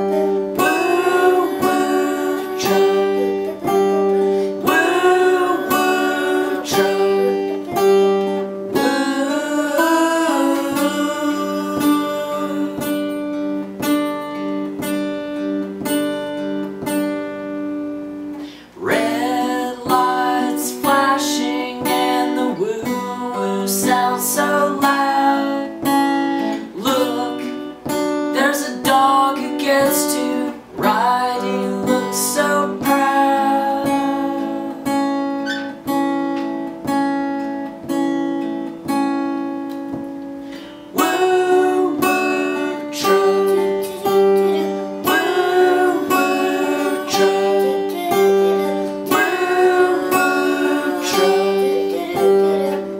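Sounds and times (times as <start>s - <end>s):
man singing: 0.0s - 13.4s, 18.6s - 35.7s, 40.9s - 52.9s
girl singing: 0.0s - 13.7s, 18.8s - 35.9s, 40.9s - 52.9s
acoustic guitar strumming: 0.0s - 52.9s.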